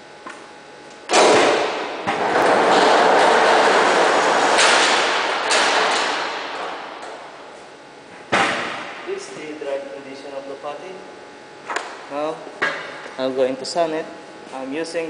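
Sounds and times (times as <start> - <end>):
loud rolling rumble: 1.8 - 7.1.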